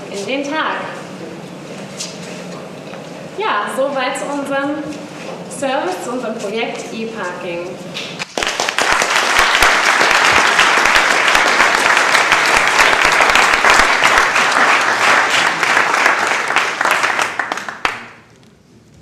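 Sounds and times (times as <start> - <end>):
audience applauding: 8.2 - 18.3.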